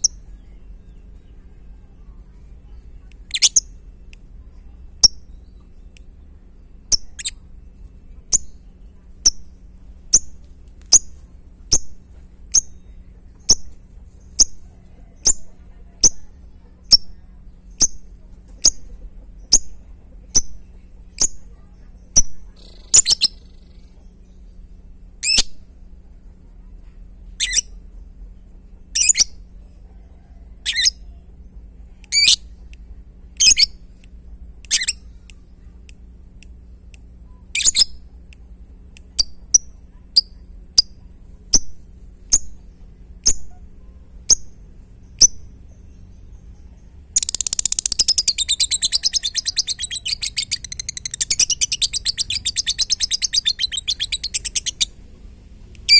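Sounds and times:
lovebird chirping: 0:00.0 - 0:01.5, 0:02.8 - 0:03.9, 0:05.0 - 0:07.5, 0:08.3 - 0:24.4, 0:25.2 - 0:25.6, 0:27.4 - 0:27.8, 0:28.9 - 0:29.4, 0:30.6 - 0:31.1, 0:32.1 - 0:32.6, 0:33.4 - 0:33.9, 0:34.6 - 0:35.7, 0:37.4 - 0:38.1, 0:39.1 - 0:55.0
bird ticking chatter: 0:00.0 - 0:01.6, 0:03.0 - 0:07.5, 0:08.2 - 0:24.5, 0:27.4 - 0:27.8, 0:30.6 - 0:43.6, 0:44.2 - 0:55.9.

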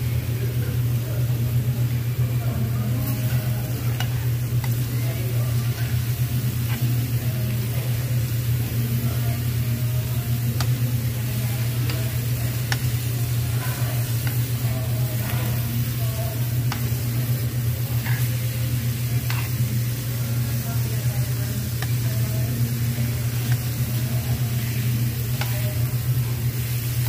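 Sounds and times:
meat sizzling on a grill: 0:00.0 - 0:27.0
steady low hum: 0:00.0 - 0:27.0
metal tongs clicking on grill: 0:03.2 - 0:04.9, 0:10.4 - 0:15.9, 0:16.5 - 0:18.4.

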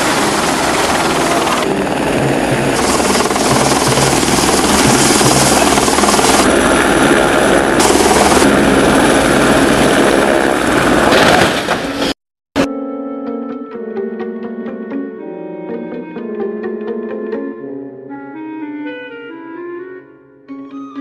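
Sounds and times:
helicopter crash: 0:00.0 - 0:12.2
helicopter rotor and engine: 0:00.0 - 0:12.2.

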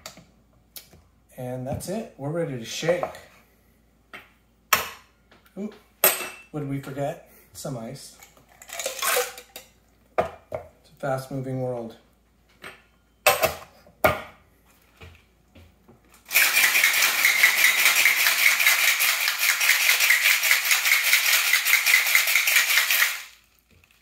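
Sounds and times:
ice rattling in shaker: 0:16.3 - 0:24.0.

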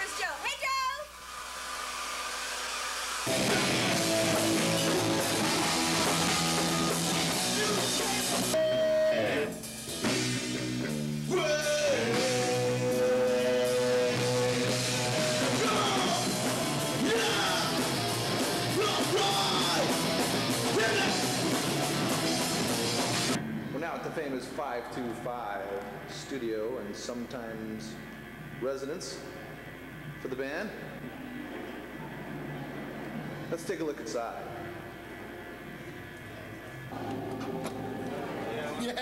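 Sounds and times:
person singing: 0:03.3 - 0:09.6, 0:11.3 - 0:21.5
punk rock band playing: 0:03.3 - 0:23.4.

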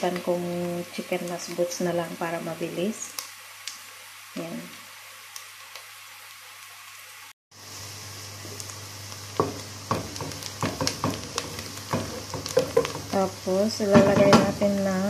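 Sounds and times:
onion sizzling in hot oil: 0:00.0 - 0:15.0
wooden spatula scraping a pot: 0:10.0 - 0:13.2.

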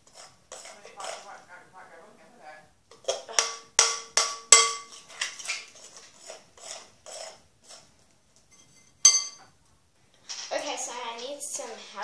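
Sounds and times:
spoon clinking in glass bowl: 0:08.6 - 0:09.5.

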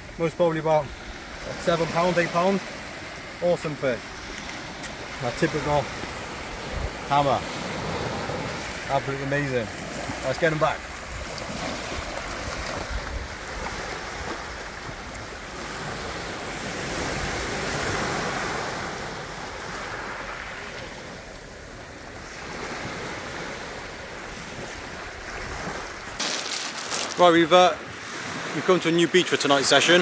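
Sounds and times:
surf washing onto beach: 0:00.0 - 0:30.0
wind buffeting microphone: 0:05.8 - 0:08.8, 0:10.9 - 0:15.9.

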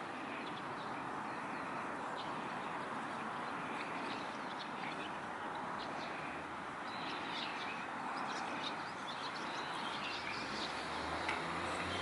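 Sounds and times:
small birds chirping: 0:00.0 - 0:12.0
traffic hum: 0:00.0 - 0:12.0.

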